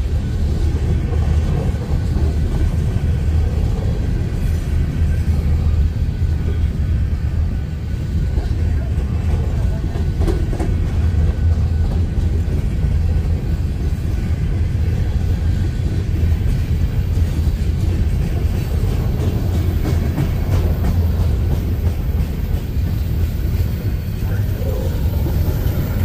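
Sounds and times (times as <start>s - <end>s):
train wheels rumbling on rails: 0.0s - 26.0s.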